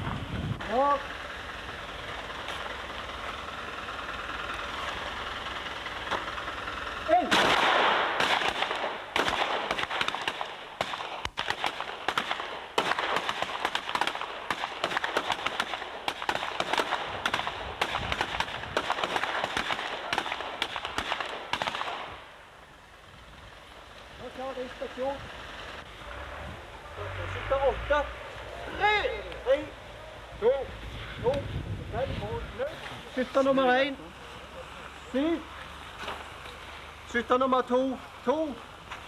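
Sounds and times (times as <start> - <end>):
overlapping pistol shots: 7.2 - 22.3.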